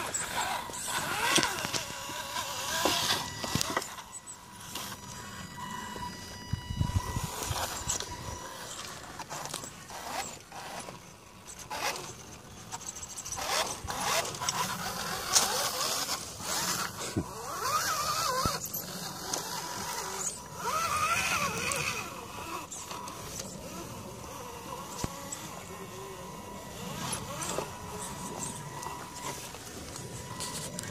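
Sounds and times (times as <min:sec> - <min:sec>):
tyres clicking and scraping on rocks: 0:00.0 - 0:06.1, 0:07.2 - 0:30.9
toy car motor whining: 0:00.0 - 0:30.9.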